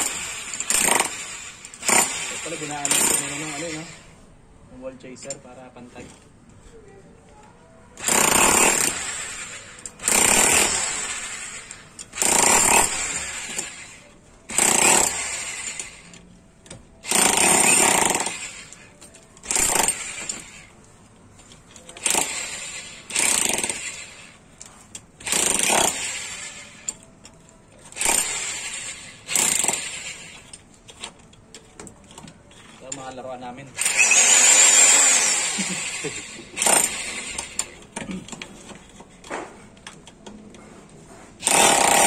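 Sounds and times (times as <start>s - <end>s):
rotary hammer chipping concrete: 22.0s - 24.2s, 25.2s - 27.0s, 41.4s - 42.0s.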